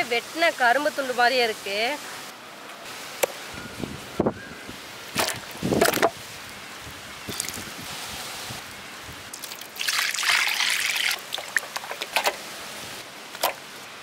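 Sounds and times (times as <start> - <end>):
water poured onto steel plate: 9.3 - 12.2.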